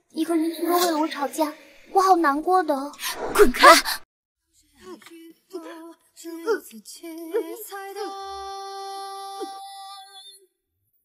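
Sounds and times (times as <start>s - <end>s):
woman singing slow melody: 4.7s - 10.4s.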